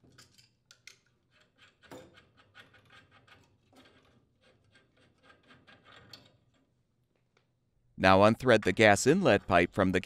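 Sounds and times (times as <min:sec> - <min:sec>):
nut turned by hand: 0:00.0 - 0:06.8.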